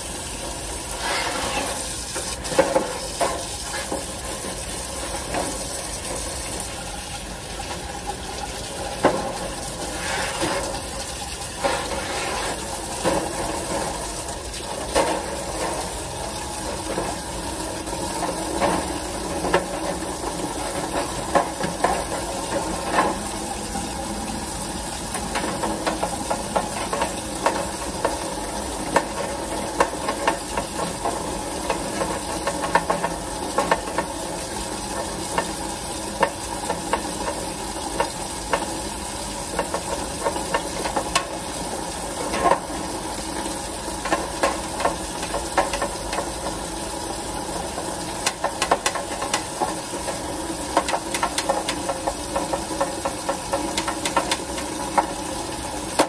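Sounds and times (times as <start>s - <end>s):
hose water splashing into tray: 0.0s - 56.0s.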